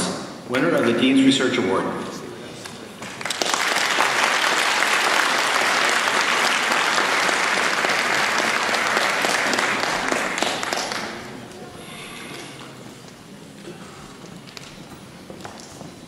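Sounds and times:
audience applauding: 3.0 - 11.5.

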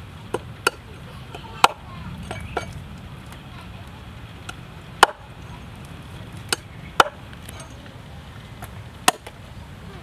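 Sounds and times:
cleaver chopping on wooden board: 5.0 - 5.2, 6.5 - 7.2, 9.0 - 9.3.

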